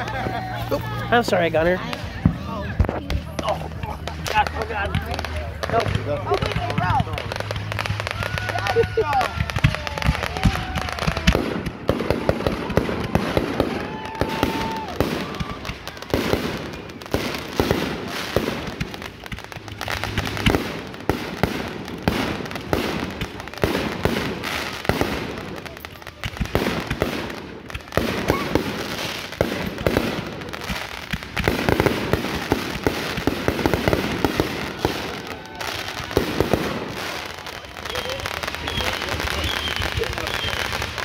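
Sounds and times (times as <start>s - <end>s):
firework barrage: 0.0s - 41.0s.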